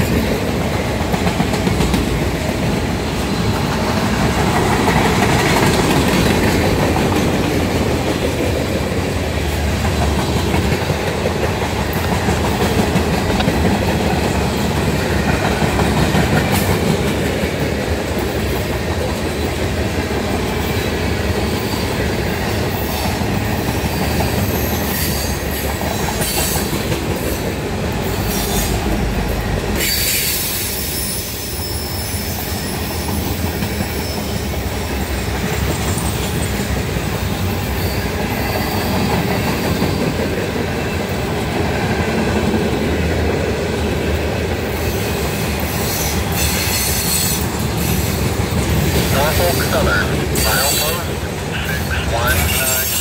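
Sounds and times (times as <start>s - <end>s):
rumble of steel wheels on rail: 0.0s - 53.0s
high wheel squeal: 29.8s - 34.5s, 37.7s - 40.1s, 44.8s - 48.1s, 50.4s - 53.0s.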